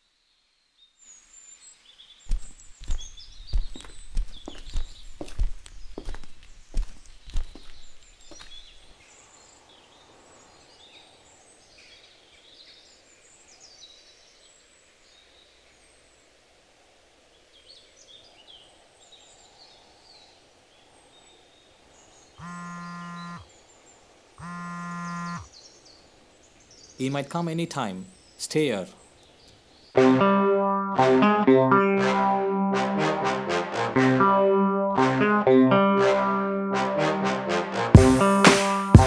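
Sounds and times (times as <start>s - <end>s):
birds chirping: 2.2s - 14.3s, 17.6s - 30.0s
low buzzing tones: 22.4s - 23.5s, 24.4s - 25.5s.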